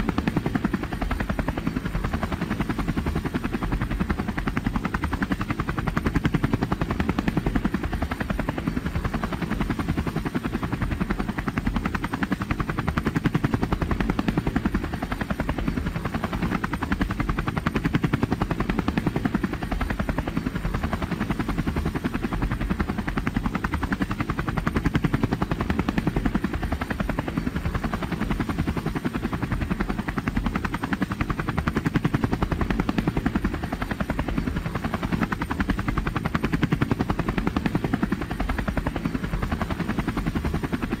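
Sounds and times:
helicopter engine drone: 0:00.0 - 0:41.0
helicopter rotor blades chopping: 0:00.0 - 0:41.0.

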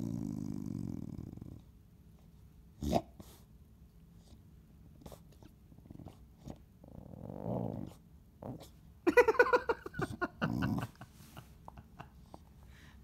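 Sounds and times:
dog growling and snarling: 0:00.0 - 0:01.7, 0:02.8 - 0:03.1, 0:05.1 - 0:08.7, 0:10.0 - 0:11.0.

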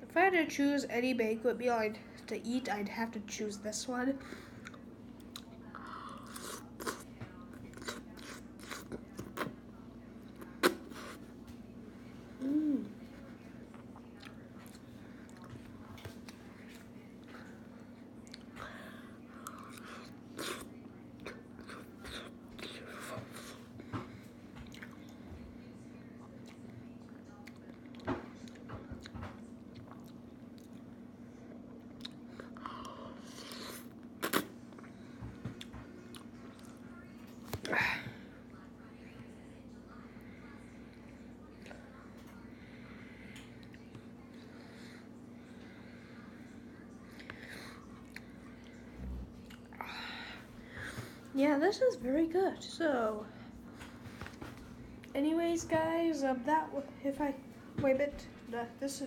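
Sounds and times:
steady low hum: 0:00.0 - 0:59.0
person chewing wetly: 0:04.6 - 0:09.6, 0:13.7 - 0:25.2, 0:26.2 - 0:26.7, 0:27.3 - 0:36.8, 0:47.1 - 0:49.8.

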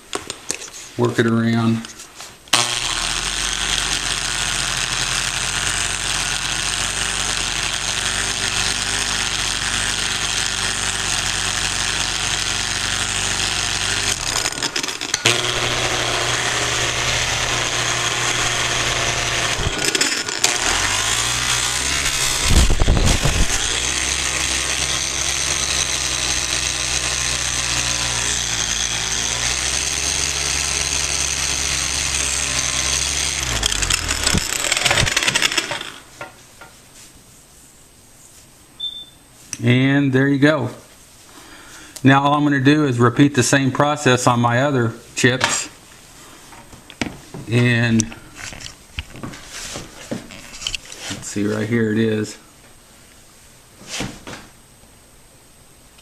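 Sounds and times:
angle grinder buffing stone: 0:02.5 - 0:36.1.

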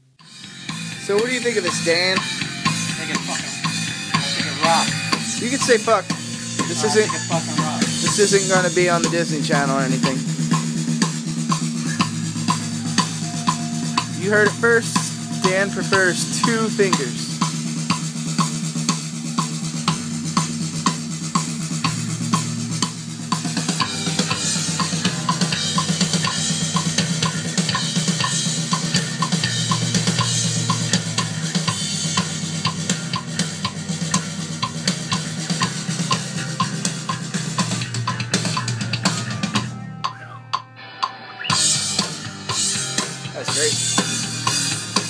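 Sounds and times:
drum kit beat: 0:00.2 - 0:45.0
electric bass line: 0:00.2 - 0:45.0.

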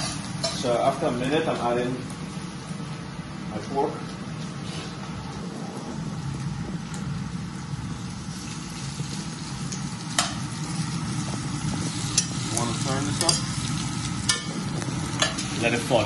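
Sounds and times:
meat sizzling in frying pan: 0:00.0 - 0:01.2, 0:07.9 - 0:16.0.

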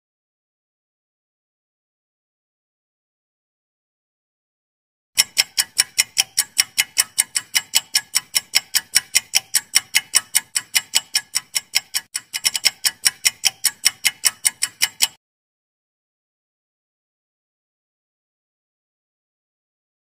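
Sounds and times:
countdown timer ticking: 0:05.2 - 0:15.2.

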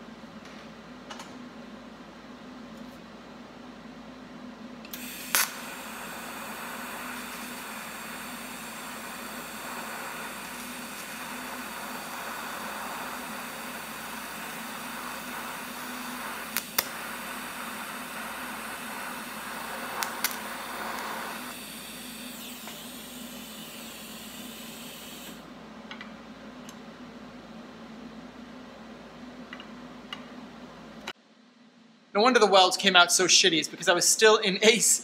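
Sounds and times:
welding arc hissing: 0:04.9 - 0:25.4.

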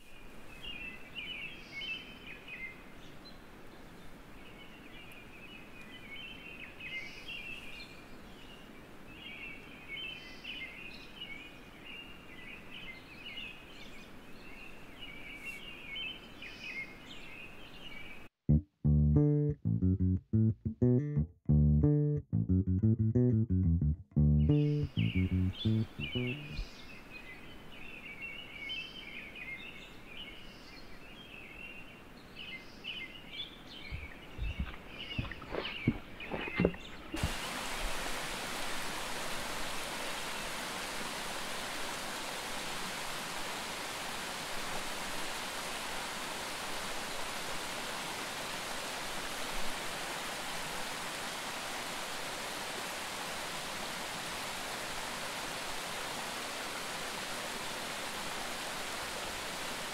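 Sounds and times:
birds chirping: 0:24.1 - 0:26.9, 0:33.0 - 0:37.2
brook rushing over rocks: 0:33.8 - 0:42.3.

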